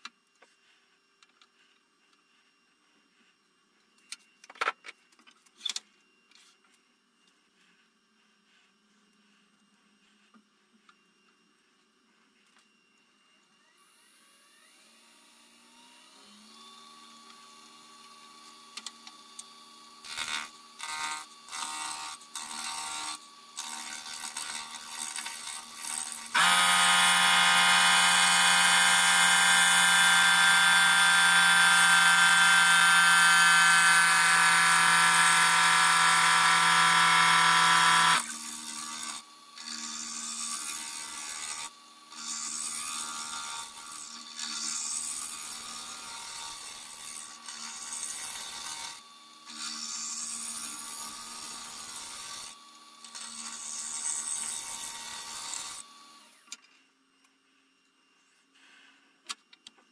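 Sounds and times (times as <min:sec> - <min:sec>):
lathe motor hum: 0:19.2 - 0:43.9
lathe tool cutting wood ringing: 0:20.0 - 0:52.5.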